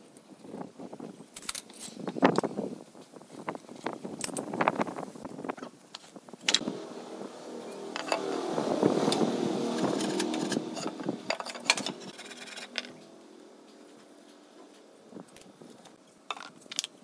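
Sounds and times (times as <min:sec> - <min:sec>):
motor engine passing by: 0:06.6 - 0:16.0.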